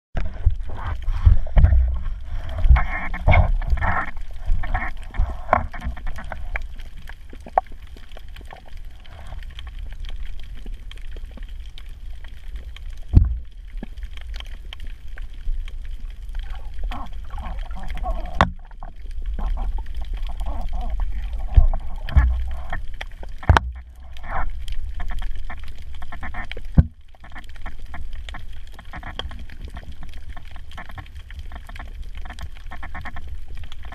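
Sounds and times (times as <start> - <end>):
underwater rumble of moving water: 0.2 - 33.9
muffled underwater bursts: 16.4 - 24.4.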